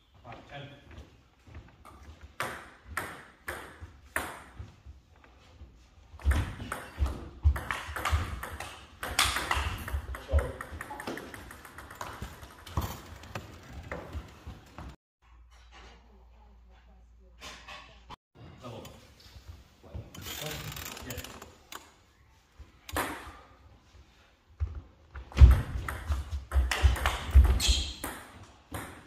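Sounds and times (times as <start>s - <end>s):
table tennis ball hits: 2.4s - 4.6s, 6.2s - 13.0s, 25.3s - 29.0s.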